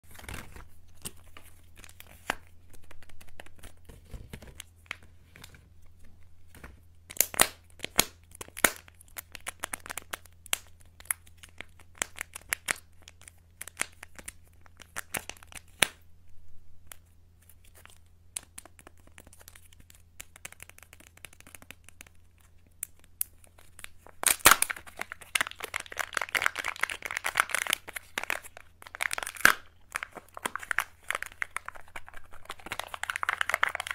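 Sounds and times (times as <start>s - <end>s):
foil wrappers crinkling and tearing: 23.2s - 33.9s.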